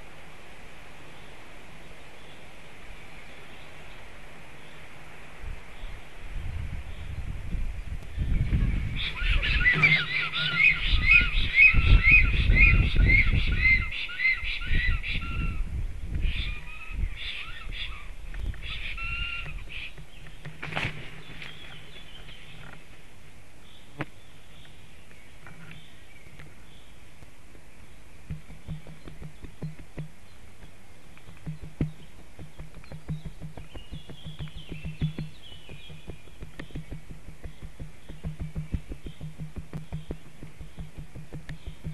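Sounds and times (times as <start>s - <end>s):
low rumbling: 6.5s - 13.6s, 28.2s - 41.9s
storks calling with whistled notes: 9.0s - 15.6s, 28.4s - 41.9s.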